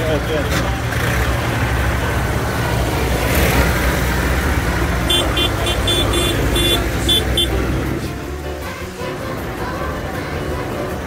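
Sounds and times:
diesel tractor engines: 0:00.0 - 0:11.0.

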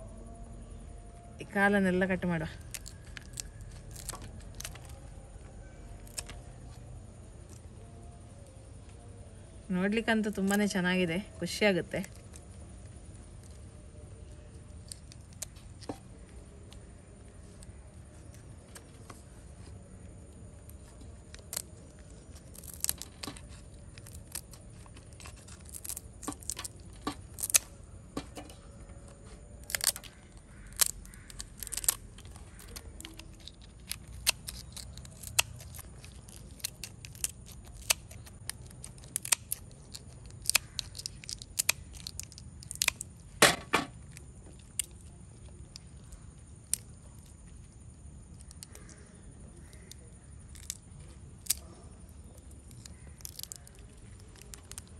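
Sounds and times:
scissors snipping through shell: 0:22.3 - 0:43.0.

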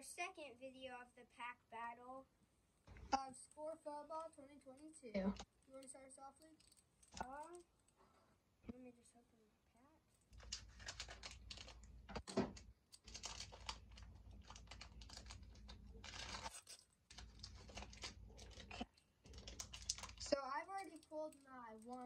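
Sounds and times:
foil wrapper crinkling: 0:10.3 - 0:22.0
scissors cutting foil wrapper: 0:13.0 - 0:22.0.

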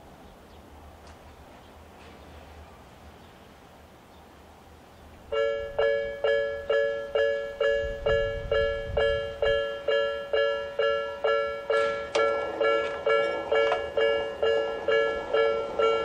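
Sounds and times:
level crossing warning bell: 0:05.3 - 0:16.0.

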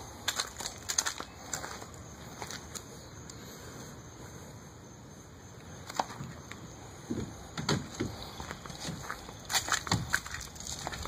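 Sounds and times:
cart rolling over pavement: 0:07.1 - 0:11.0.

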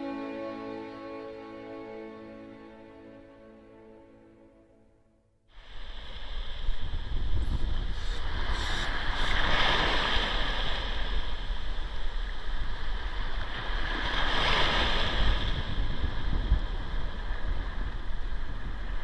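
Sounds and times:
waves washing on beach: 0:05.6 - 0:19.0.

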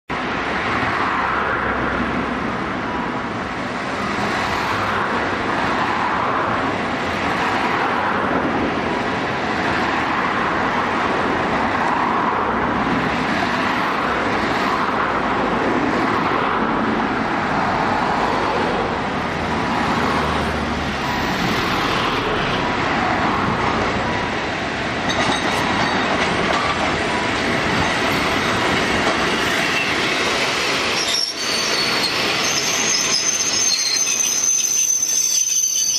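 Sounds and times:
street traffic noise: 0:00.1 - 0:35.9
streetcar running on track: 0:00.1 - 0:35.9
thin squealing from wheels: 0:29.5 - 0:35.9.

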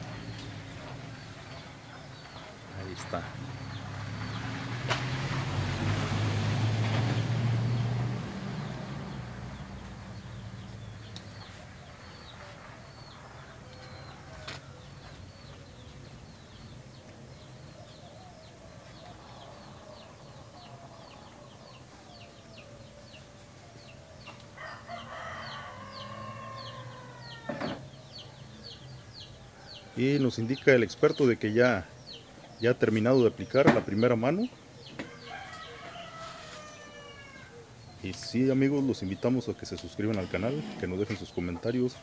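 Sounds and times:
small birds chirping: 0:00.0 - 0:05.0, 0:07.0 - 0:42.0
rooster crowing: 0:18.4 - 0:23.9, 0:24.5 - 0:27.9, 0:34.9 - 0:37.8.

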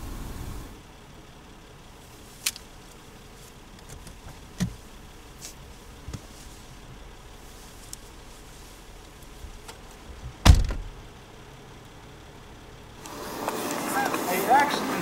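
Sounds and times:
low hum inside car: 0:00.0 - 0:15.0
sharp clicks and knocks: 0:03.8 - 0:04.8
low thump: 0:10.2 - 0:11.0.

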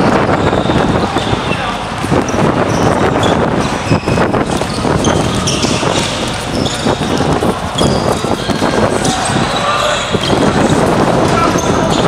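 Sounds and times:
basketball bouncing on hard court: 0:00.0 - 0:09.4
sneakers squeaking: 0:00.0 - 0:12.0.

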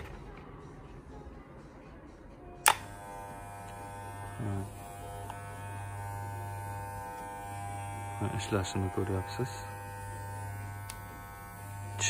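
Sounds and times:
hair clipper buzzing: 0:02.6 - 0:12.0.

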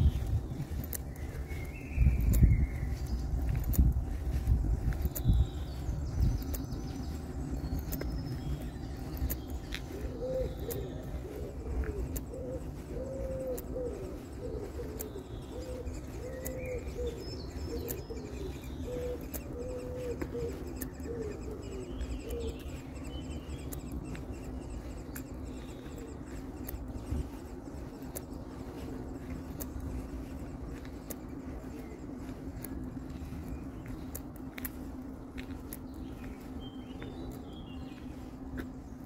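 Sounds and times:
low background rumble: 0:00.0 - 0:39.0
pigeon cooing: 0:09.8 - 0:30.9.

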